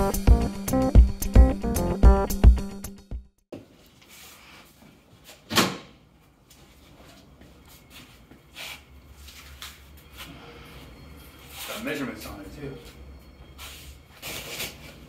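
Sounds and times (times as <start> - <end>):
foam packing sheets rustling: 14.2 - 15.0.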